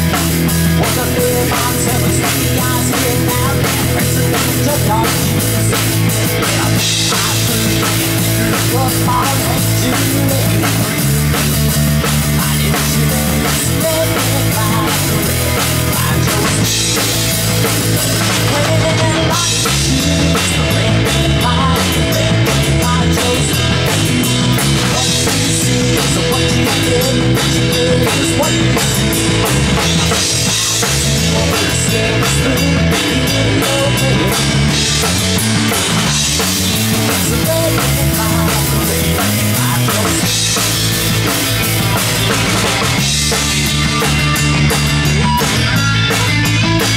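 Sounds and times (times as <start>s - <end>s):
drum kit: 0.0s - 46.9s
electric guitars: 0.0s - 46.9s.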